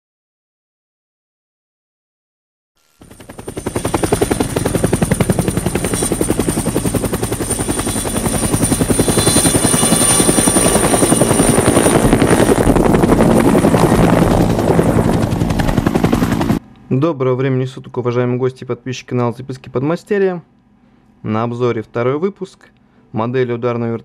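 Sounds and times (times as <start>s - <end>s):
helicopter rotor chop: 2.8s - 16.6s
turbine whine: 2.8s - 17.3s.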